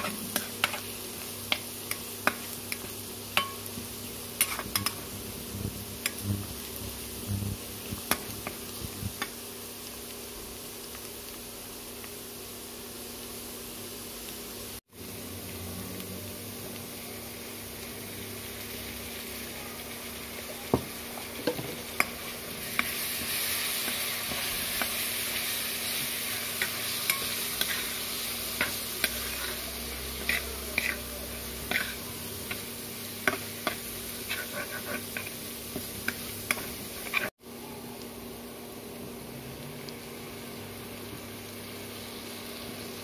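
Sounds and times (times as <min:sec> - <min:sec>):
onions sizzling in hot oil: 0:00.0 - 0:43.0
metal spoon scraping wok: 0:23.8 - 0:32.6, 0:33.2 - 0:35.4, 0:36.0 - 0:37.3.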